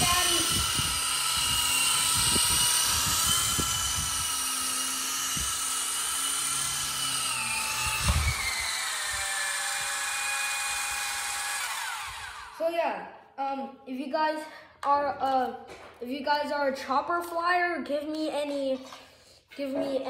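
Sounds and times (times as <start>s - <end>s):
toy helicopter rotors whining: 0.0s - 12.6s.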